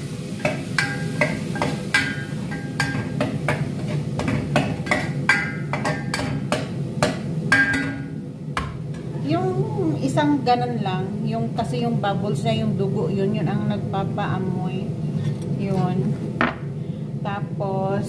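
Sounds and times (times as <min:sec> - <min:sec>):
steady low hum: 0:00.0 - 0:18.0
metal ladle clinking on pot: 0:00.4 - 0:08.7.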